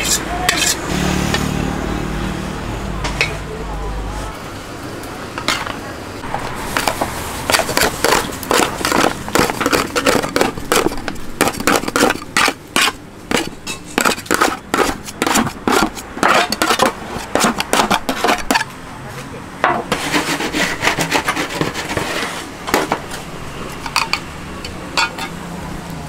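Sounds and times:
metal scraper scraping on wood: 0.0 - 1.4, 6.8 - 18.7, 19.7 - 23.0.

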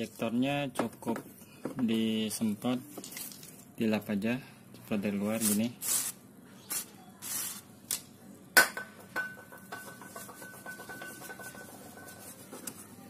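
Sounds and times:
spray can hiss: 5.4 - 7.7.

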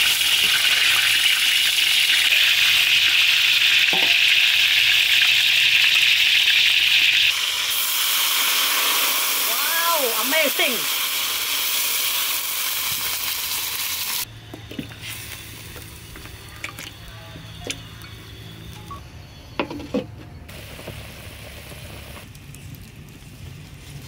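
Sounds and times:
steam hissing off a wok: 0.0 - 14.3, 14.9 - 16.6, 20.5 - 22.3.

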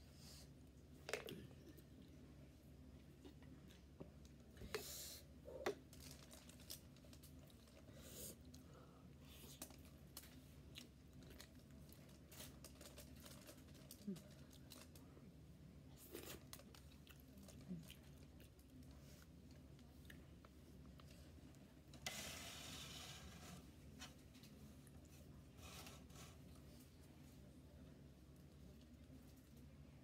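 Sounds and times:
aluminium foil crinkles: 5.9 - 7.8, 11.2 - 15.0.

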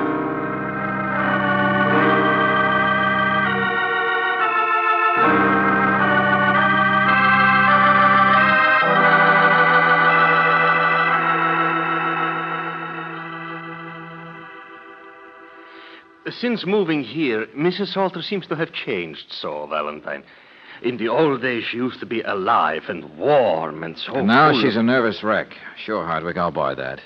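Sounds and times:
organ playing sustained chords: 0.0 - 18.3, 23.2 - 25.4.

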